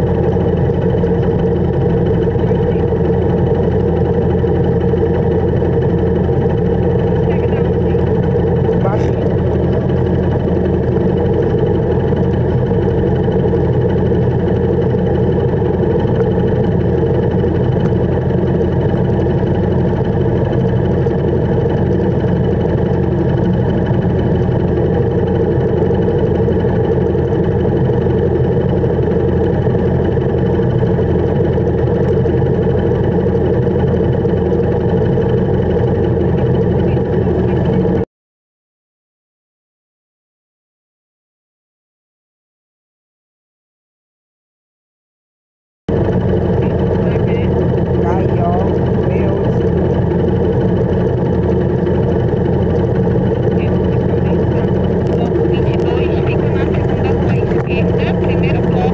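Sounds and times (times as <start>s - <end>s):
motorcycle engine idling: 0.0s - 38.0s, 45.9s - 58.9s.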